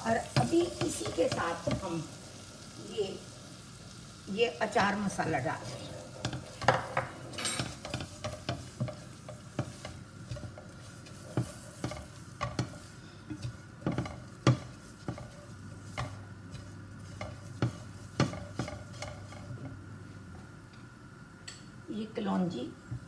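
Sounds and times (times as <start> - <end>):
spices sizzling in ghee: 0.0 - 23.0
spatula tapping pot: 0.1 - 2.0, 4.7 - 19.8
spatula scraping metal pot: 4.8 - 19.7.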